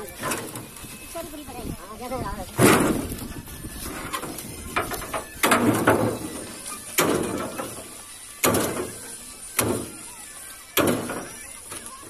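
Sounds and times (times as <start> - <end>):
stalks clattering on steel trailer: 2.5 - 3.2, 3.9 - 10.1.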